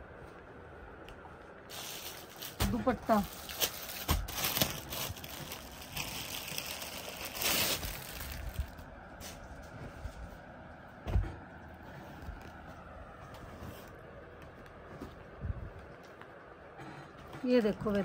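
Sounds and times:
fabric rustling: 0:01.7 - 0:10.5.

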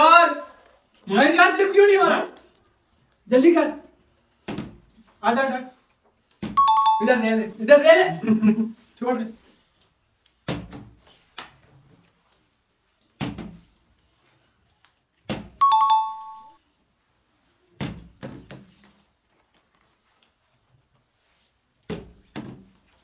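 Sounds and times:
two-note ding-dong chime: 0:06.6 - 0:07.1, 0:15.6 - 0:16.6.

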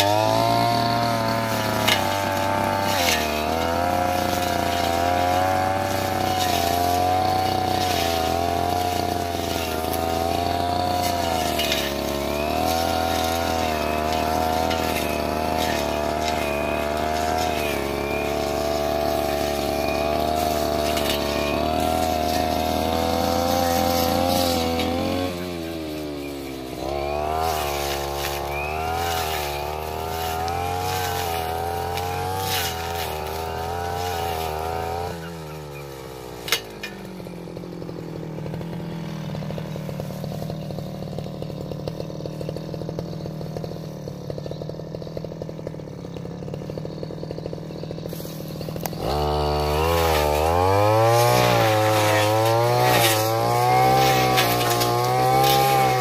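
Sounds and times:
brush cutter engine revving: 0:00.0 - 0:56.0.

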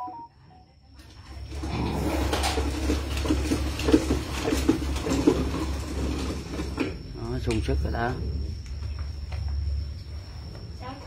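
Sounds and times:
dogs grunting: 0:01.5 - 0:04.8.

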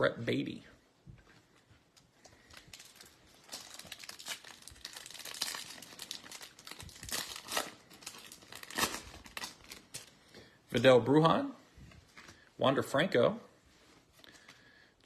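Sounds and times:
wrapper crinkling and tearing: 0:02.2 - 0:10.2.

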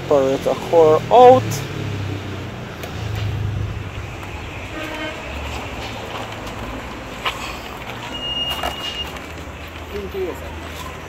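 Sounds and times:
low vehicle rumble: 0:00.0 - 0:08.2
short horn toot: 0:04.6 - 0:05.4.

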